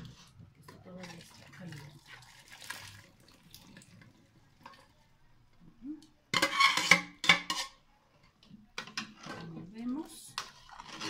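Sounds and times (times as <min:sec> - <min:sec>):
liquid pouring and splashing: 0:00.9 - 0:05.0.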